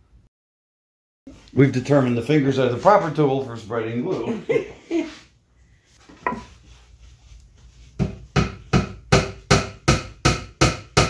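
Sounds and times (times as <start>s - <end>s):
hammer tapping wooden dowel: 8.0s - 11.0s.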